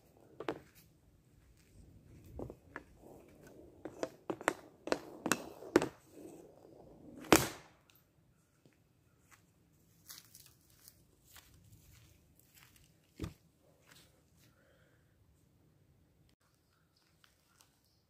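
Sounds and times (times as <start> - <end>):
hockey stick tapping ball: 2.3 - 6.1
loud crack of ball shot: 7.2 - 7.7.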